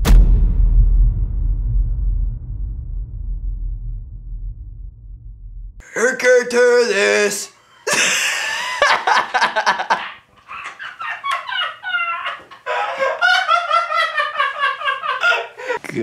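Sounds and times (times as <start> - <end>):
man laughing hard: 7.8 - 15.8.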